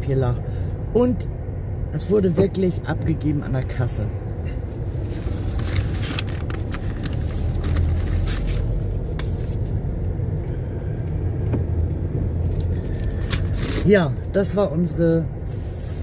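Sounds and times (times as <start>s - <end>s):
car cabin low rumble: 0.0s - 16.0s
book handling clicks and rustles: 5.0s - 9.7s.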